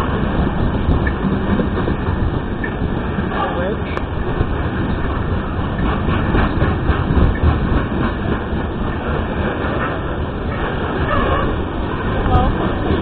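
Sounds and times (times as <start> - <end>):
train wheels rumbling on rails: 0.0 - 13.0
wheels clacking over rail joints: 0.0 - 13.0.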